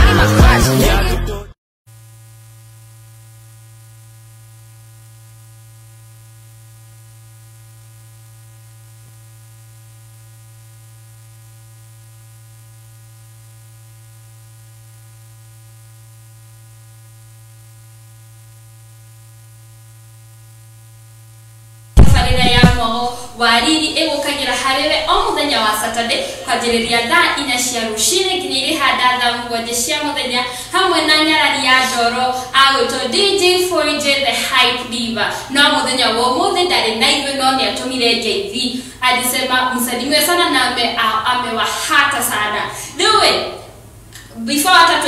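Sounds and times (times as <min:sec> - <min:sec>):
buzzy electrical hum: 0:01.9 - 0:45.0
woman's voice: 0:22.0 - 0:45.0.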